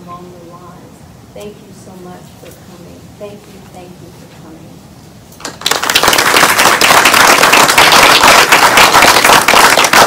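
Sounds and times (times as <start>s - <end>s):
audience applauding: 5.5s - 10.0s.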